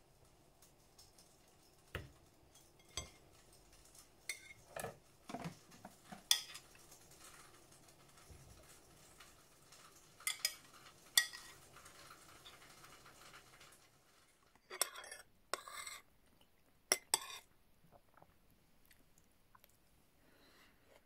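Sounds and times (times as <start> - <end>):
cutlery clinking on a plate: 2.0 - 3.2, 4.3 - 6.7, 10.2 - 11.6
cutlery scraping a plate: 2.6 - 3.2, 4.3 - 7.4, 10.2 - 12.6, 14.7 - 16.0, 16.9 - 17.5.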